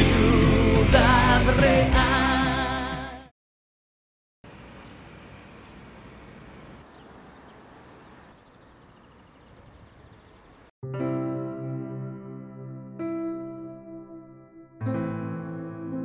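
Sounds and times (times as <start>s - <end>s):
faint bird chirps: 4.5s - 10.7s.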